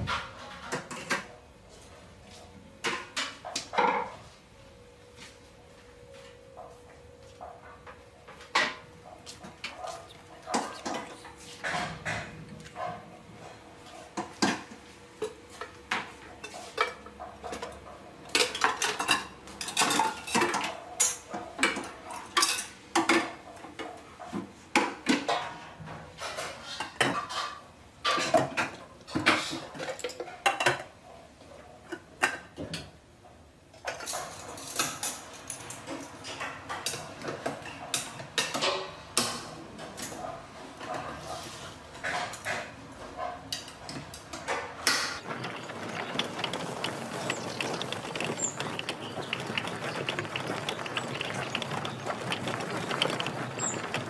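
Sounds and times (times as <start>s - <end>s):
pots and spoons clattering: 18.3s - 23.4s, 45.2s - 54.0s.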